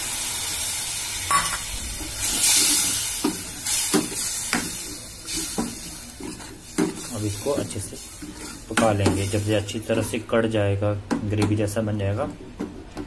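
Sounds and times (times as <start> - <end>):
sauce sizzling in a metal pot: 0.0 - 10.4
wooden spoon stirring and scraping: 2.2 - 10.4.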